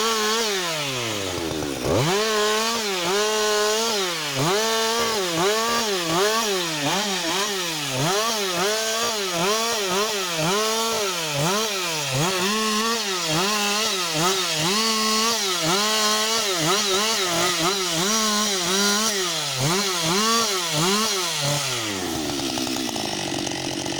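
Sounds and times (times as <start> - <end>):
chainsaw cutting wood: 0.0 - 23.9.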